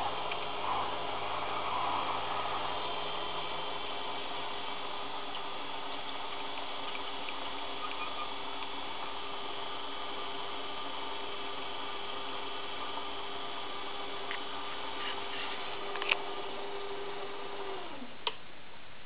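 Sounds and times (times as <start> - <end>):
lathe motor and gear whine: 0.0 - 18.1.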